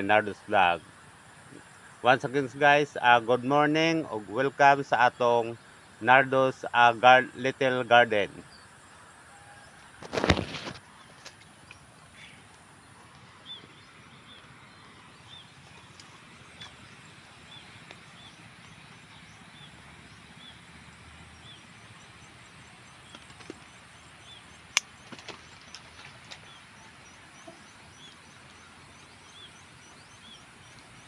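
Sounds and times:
leaves rustling against phone: 0:09.9 - 0:18.3.

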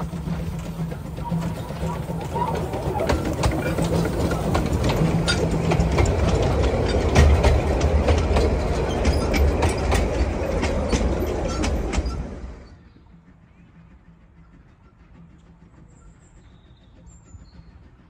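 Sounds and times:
wheels clicking over rail joints: 0:00.0 - 0:12.8
train carriages rumbling past: 0:00.0 - 0:18.0.

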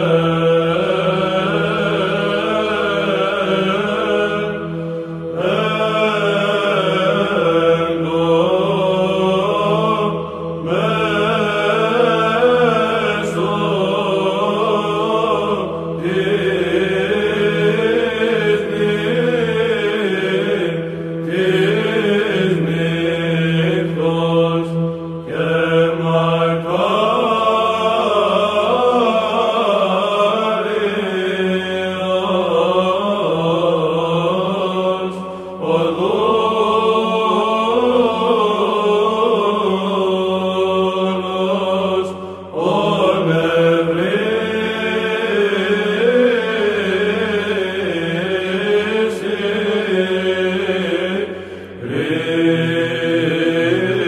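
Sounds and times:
choir chanting: 0:00.0 - 0:54.0.

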